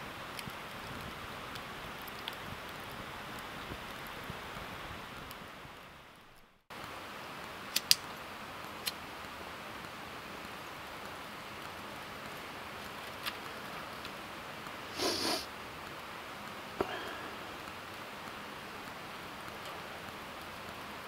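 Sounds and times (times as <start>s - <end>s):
outdoor hiss: 0.0s - 21.0s
dry twigs snapping: 7.7s - 8.0s.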